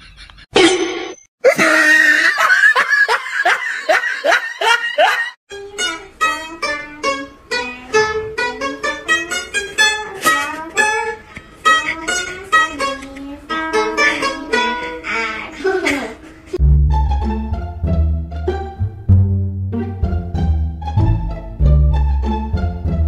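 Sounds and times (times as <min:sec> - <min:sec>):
plucked lute melody: 0:05.5 - 0:15.1.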